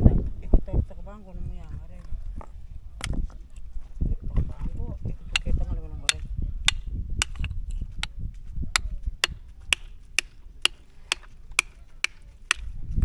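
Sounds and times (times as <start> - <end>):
hammer pounding shell on rock: 5.4 - 7.6, 8.8 - 12.7.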